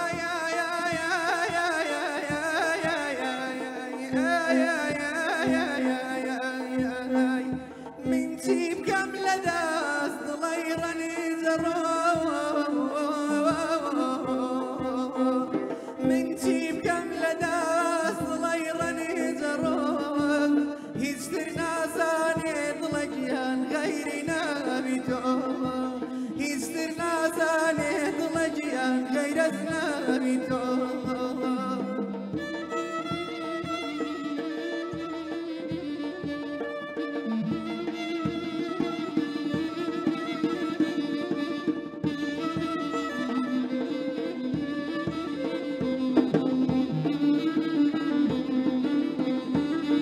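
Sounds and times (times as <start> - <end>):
man singing folk song: 0.0 - 35.2
hand drum beats: 0.0 - 50.0.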